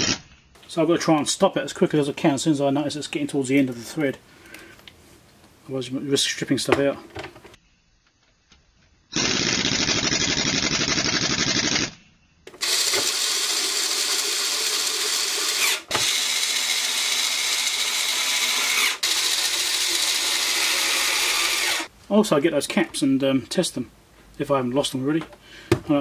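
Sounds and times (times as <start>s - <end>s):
electric screwdriver running: 12.6s - 21.9s.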